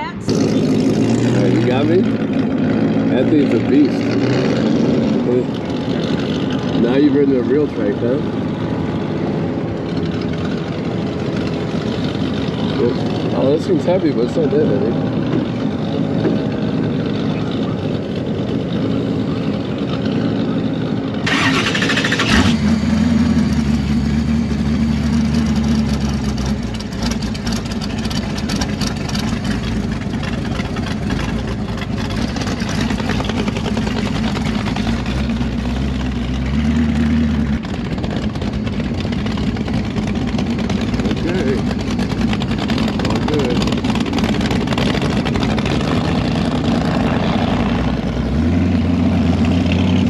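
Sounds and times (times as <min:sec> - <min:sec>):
motorcycle engines idling: 0:00.0 - 0:50.0.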